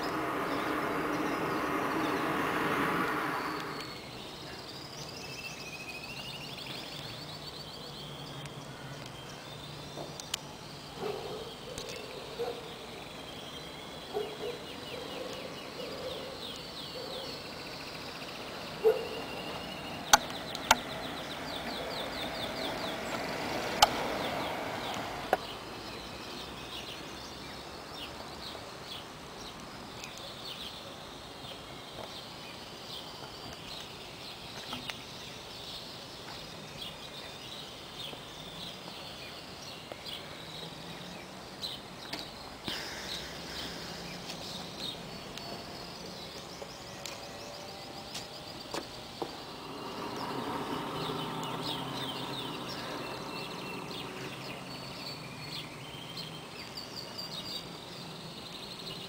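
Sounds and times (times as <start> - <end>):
lower bird calls: 0.0 - 27.0
birds chirping and trilling: 0.0 - 59.0
sharp clicks: 20.1 - 20.9.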